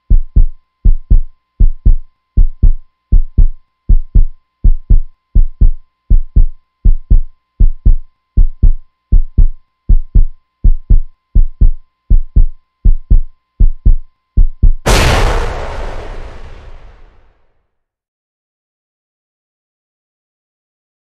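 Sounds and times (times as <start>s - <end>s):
heartbeat thumps: 0.0s - 15.0s.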